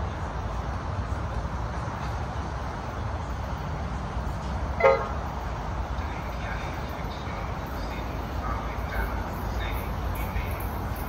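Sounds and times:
train rumble: 0.0s - 11.0s
train horn toot: 4.8s - 5.2s.

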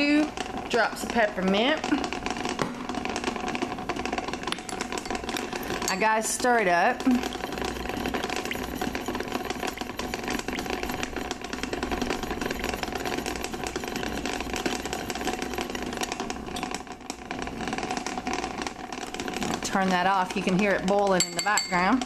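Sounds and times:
water boiling in a pan: 0.0s - 22.0s
rapid rattling: 4.7s - 16.8s.

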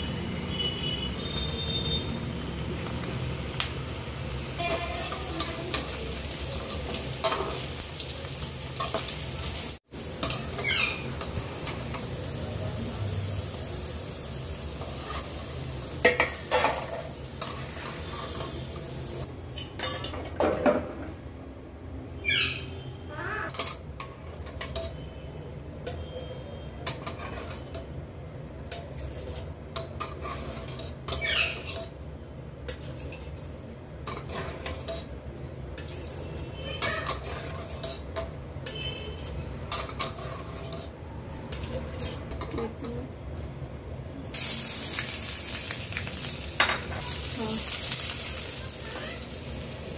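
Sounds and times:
spoon and ladle scraping metal pan: 14.8s - 18.8s, 25.8s - 27.9s, 28.8s - 32.0s, 34.0s - 35.2s, 35.8s - 42.7s.

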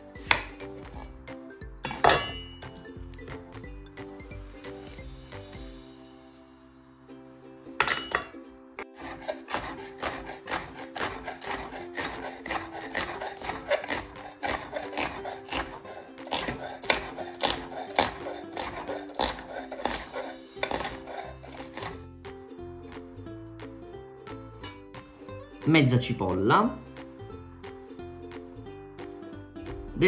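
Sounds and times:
background music: 0.0s - 30.0s
knife chopping on cutting board: 0.2s - 1.1s, 9.0s - 22.0s.

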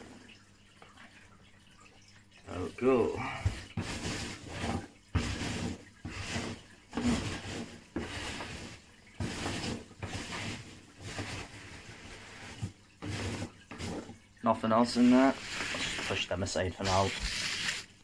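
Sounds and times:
packing peanuts rustling: 15.1s - 18.0s.

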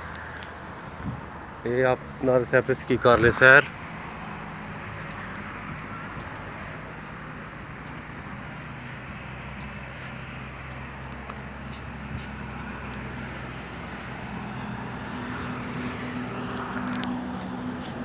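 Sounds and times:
large engine humming: 3.8s - 18.0s.

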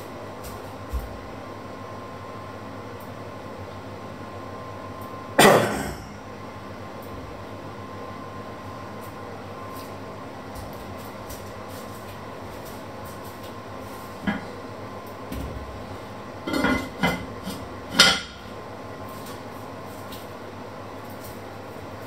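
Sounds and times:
low background hum: 0.0s - 22.0s
kitchenware knocks and clinks: 16.5s - 17.3s.

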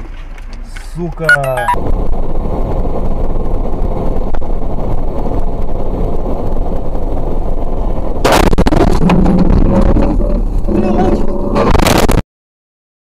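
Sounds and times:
vehicle interior rumble: 0.0s - 12.0s
loud vehicle crash: 8.2s - 10.7s.

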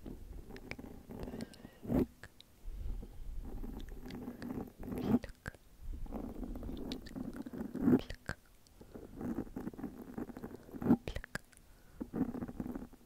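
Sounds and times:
person whispering: 0.6s - 2.4s, 3.8s - 8.5s, 10.3s - 11.6s
mouth and lip clicks: 6.5s - 8.9s, 9.6s - 11.7s.

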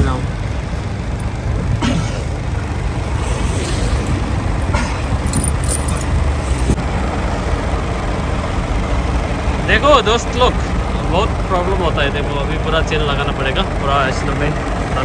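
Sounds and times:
diesel truck engine idling: 0.0s - 15.0s
snow chains clinking and rattling: 3.0s - 6.8s.

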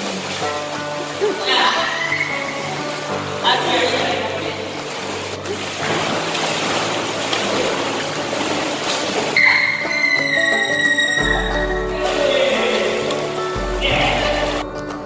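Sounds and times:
faint background music: 0.0s - 15.0s
water splashing in pool: 0.0s - 15.0s
high-pitched squeal: 9.4s - 12.2s.

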